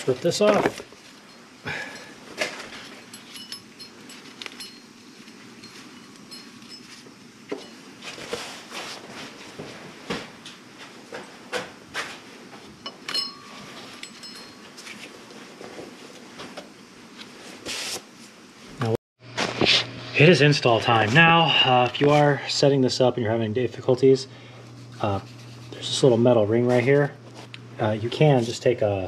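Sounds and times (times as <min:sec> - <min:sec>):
tools and parts clinking: 0:00.0 - 0:08.2, 0:12.8 - 0:15.1.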